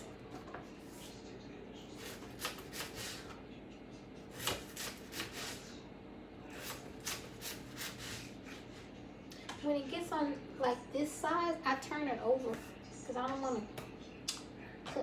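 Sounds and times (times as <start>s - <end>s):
knife slicing potato on board: 2.0s - 3.4s, 4.3s - 5.7s, 6.5s - 8.3s.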